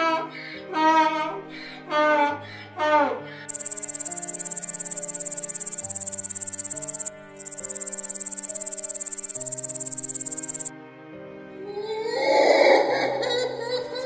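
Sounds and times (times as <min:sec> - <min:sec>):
background music with held notes: 0:00.0 - 0:14.0
katydid high-pitched buzz: 0:03.5 - 0:10.7.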